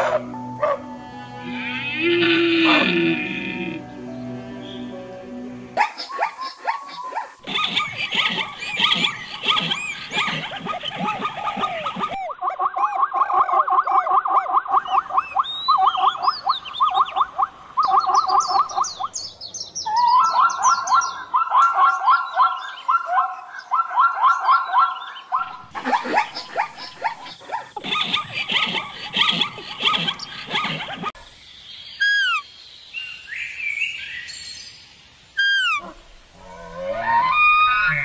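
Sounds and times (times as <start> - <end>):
zebra yelping barks: 0.0 - 0.8, 1.6 - 3.8, 5.8 - 16.1, 19.9 - 31.2, 35.4 - 36.0.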